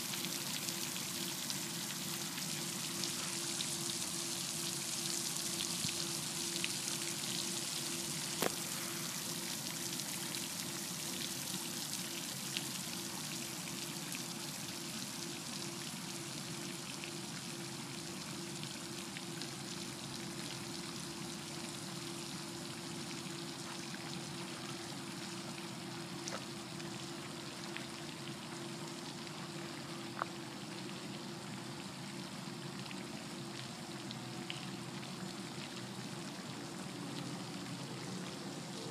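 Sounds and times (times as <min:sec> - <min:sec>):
rushing water noise: 0:00.0 - 0:13.7
low steady hum: 0:00.0 - 0:38.9.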